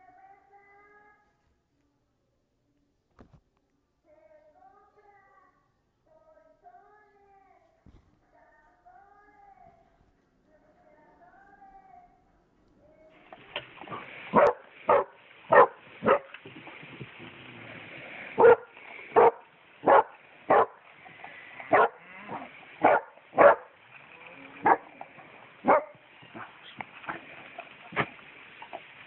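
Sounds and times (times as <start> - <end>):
dogs barking: 13.9 - 16.4, 18.4 - 20.8, 21.7 - 23.8, 24.6 - 24.9, 25.6 - 26.7.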